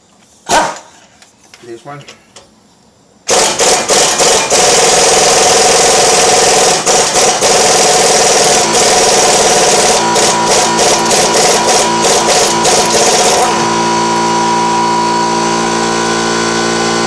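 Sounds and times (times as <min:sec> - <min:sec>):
impact wrench hammering on bolt: 0:03.3 - 0:13.6.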